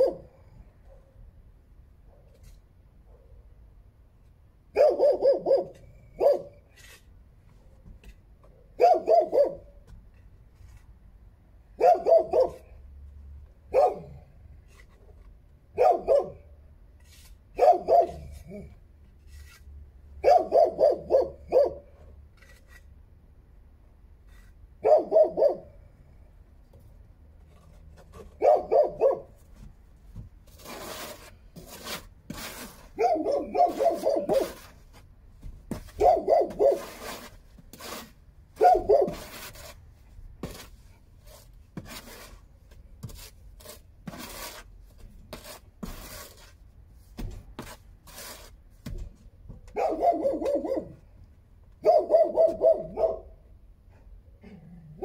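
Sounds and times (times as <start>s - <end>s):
dog barking: 0.0s - 1.2s, 4.8s - 6.6s, 8.8s - 9.7s, 11.8s - 12.7s, 13.7s - 14.2s, 15.8s - 16.4s, 17.6s - 18.7s, 20.2s - 21.9s, 24.8s - 25.8s, 28.4s - 29.3s, 33.0s - 34.6s, 36.0s - 36.9s, 38.6s - 39.2s, 49.7s - 51.0s, 51.8s - 53.4s
sharp scrapes and knocks: 2.3s - 2.7s, 5.7s - 11.2s, 14.5s - 16.2s, 16.9s - 20.0s, 22.0s - 23.2s, 24.2s - 24.8s, 26.6s - 50.7s.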